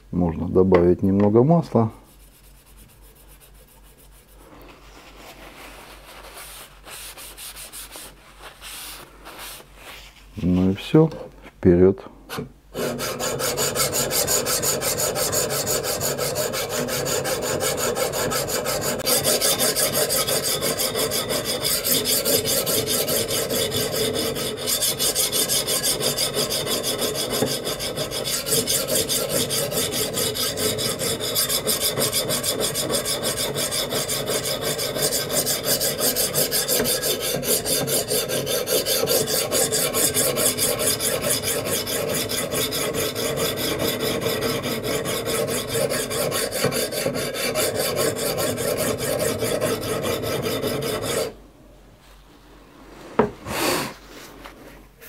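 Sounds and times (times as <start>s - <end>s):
sharpening stone grinding on blade: 12.8s - 51.3s.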